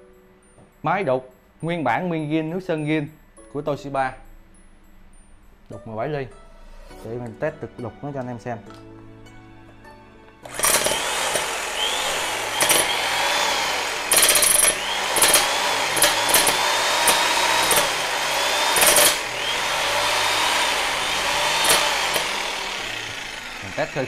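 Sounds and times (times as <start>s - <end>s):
electric demolition hammer hammering: 10.4s - 24.0s.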